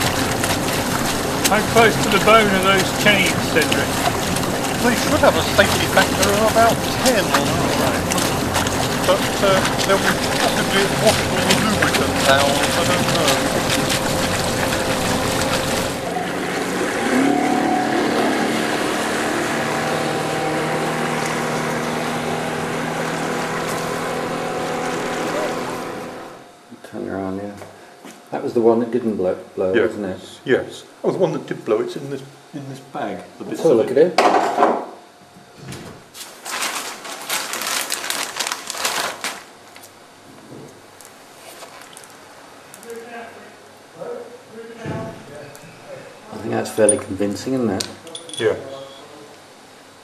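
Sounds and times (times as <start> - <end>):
water and wind noise: 0.0 - 26.4
motorboat engine running: 0.0 - 26.5
bag rustling: 36.2 - 39.4.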